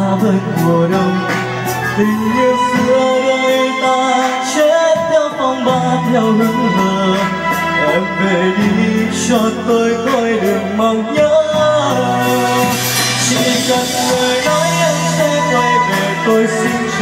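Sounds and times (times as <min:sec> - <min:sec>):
instrumental backing chords and bass: 0:00.0 - 0:17.0
man singing into a microphone: 0:00.0 - 0:17.0.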